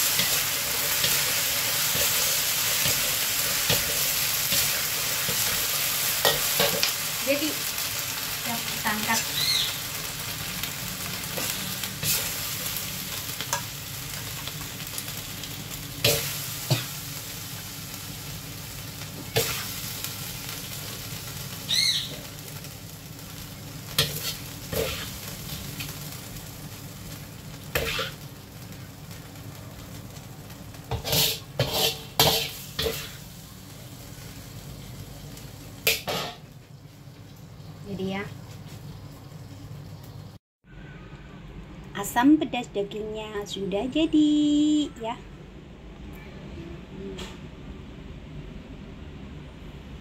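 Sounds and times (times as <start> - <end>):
hot pan sizzling: 0.0 - 40.4
metal spatula scraping a wok: 11.4 - 12.4, 19.3 - 19.8, 24.0 - 25.2, 27.7 - 28.2, 30.9 - 33.2.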